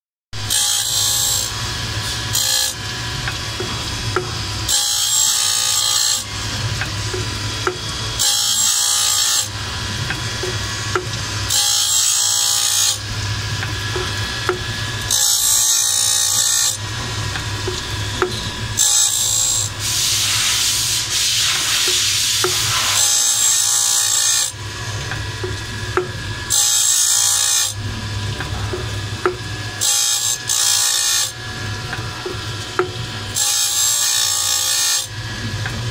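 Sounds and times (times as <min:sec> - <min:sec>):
steady machine hum: 0:00.4 - 0:35.9
grinding wheel hissing against blade: 0:18.6 - 0:24.9, 0:26.4 - 0:27.8, 0:32.8 - 0:35.1.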